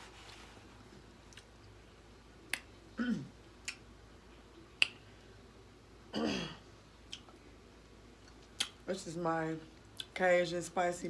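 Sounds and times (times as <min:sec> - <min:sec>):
eating clicks and smacks: 0:03.6 - 0:03.9, 0:04.8 - 0:05.0, 0:08.2 - 0:08.8.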